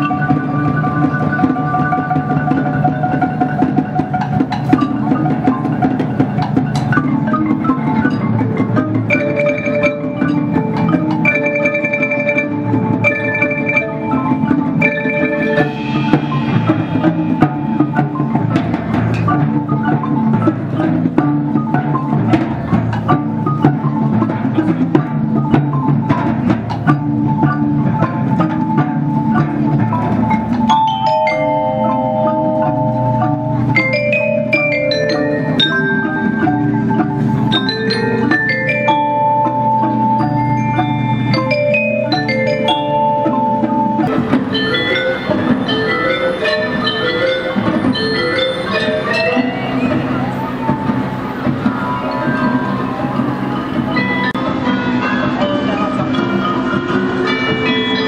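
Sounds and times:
mallet instruments melody: 0.0 - 58.0
percussion band playing: 0.0 - 58.0.

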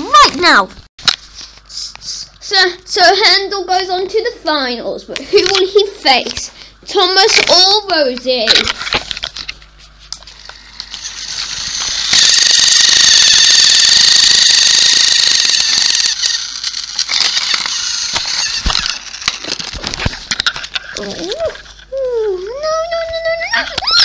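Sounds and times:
toy electric motor whine: 10.2 - 21.7, 23.6 - 24.0
toy wheels and gears rattling: 10.4 - 21.6.

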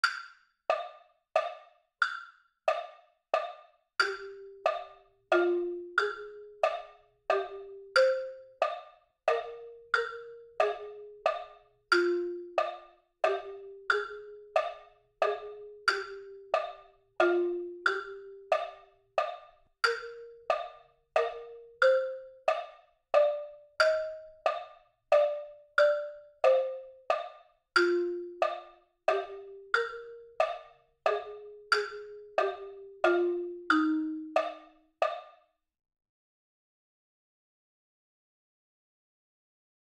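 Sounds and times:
click track ticking: 0.0 - 35.3
slow melody instrument: 4.0 - 35.2.

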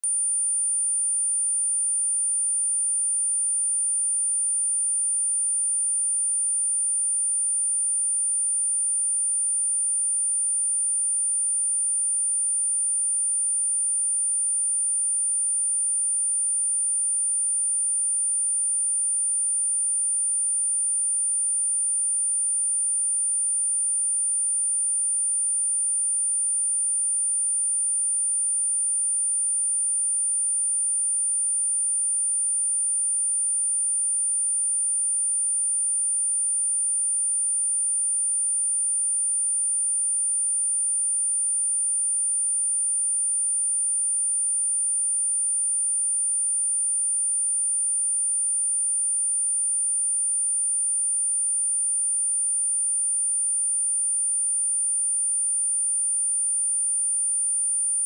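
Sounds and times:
high-pitched sine test tone: 0.0 - 40.6, 41.4 - 58.0.

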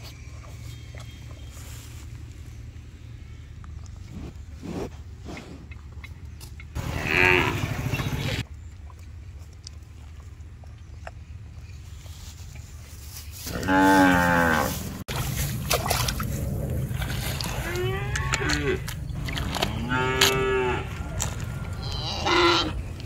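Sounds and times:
low rumble: 0.0 - 23.0
cattle mooing: 6.8 - 8.4, 13.5 - 15.0, 16.3 - 23.0.

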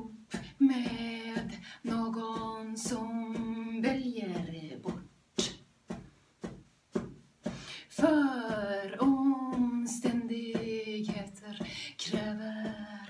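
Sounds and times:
woman singing: 0.0 - 5.6, 7.8 - 13.0
accompaniment with steady beat: 0.0 - 12.8.

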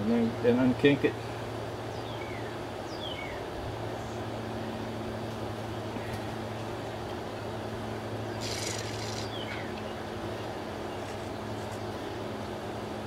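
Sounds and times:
steady low hum: 0.0 - 13.0
descending bird chirps: 8.3 - 9.7
brief high hiss: 8.4 - 9.3.

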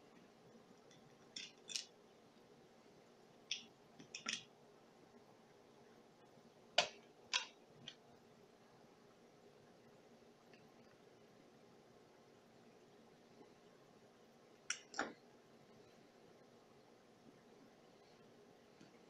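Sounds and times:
small plastic parts clicking: 0.9 - 1.9, 3.5 - 4.5.

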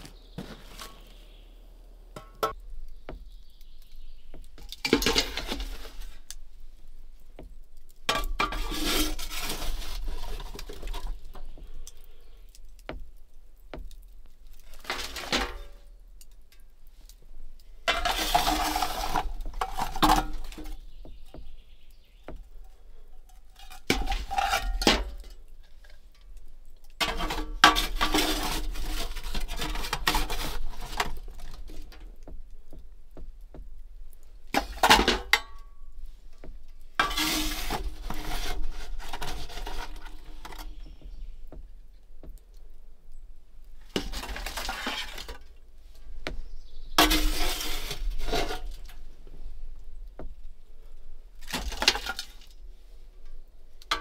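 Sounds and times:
metal scoop scraping ash: 0.0 - 1.4, 2.2 - 13.0, 13.7 - 17.1, 17.8 - 32.3, 34.2 - 41.4, 43.8 - 49.6.

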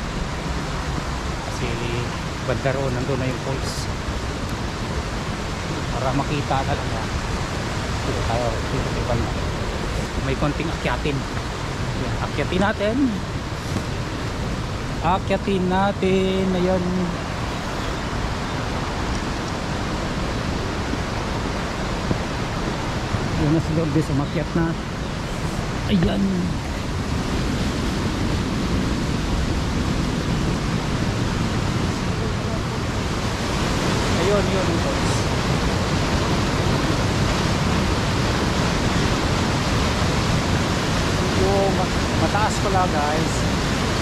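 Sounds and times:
fast-flowing river rushing: 0.0 - 44.0.

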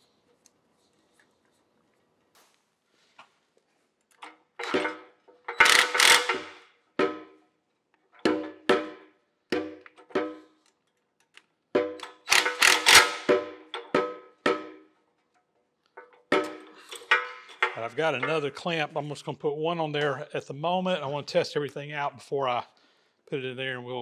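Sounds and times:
impact driver hammering: 4.6 - 7.4, 8.2 - 10.5, 11.8 - 14.8.

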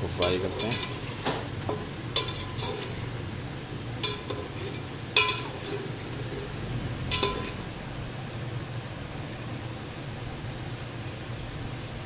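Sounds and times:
metal spoon scraping pot: 0.1 - 3.2, 4.0 - 7.7.

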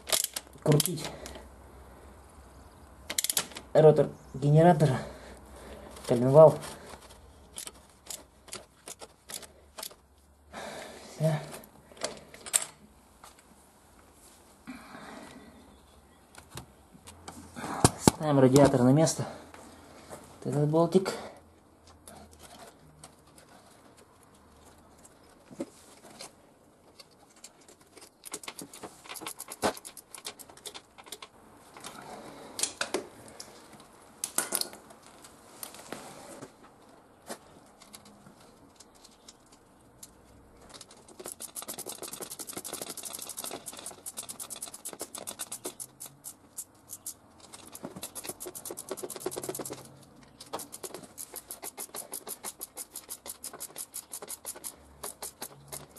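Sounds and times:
ratchet wrench ticking: 41.2 - 49.8, 50.6 - 55.9.

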